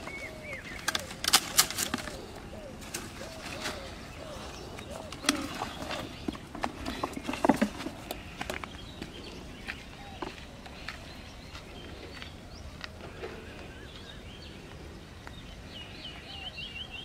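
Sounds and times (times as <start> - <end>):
birds chirping: 0.0 - 17.0
faint footsteps on dirt path: 1.9 - 16.5.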